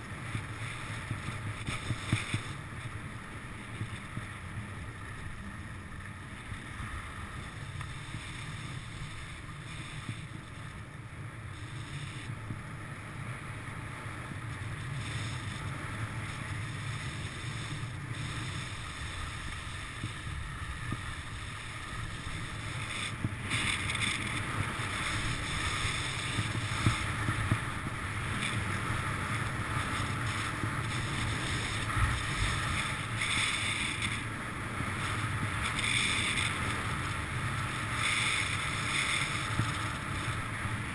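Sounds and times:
skis hissing on snow: 7.0 - 10.8, 11.4 - 12.3, 14.1 - 40.9
wind rushing over microphone: 11.5 - 40.9.

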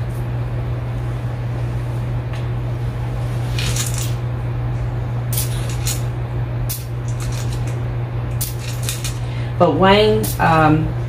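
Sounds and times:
steady low hum: 0.0 - 11.0
dried beans rattling into colander: 3.6 - 4.2.

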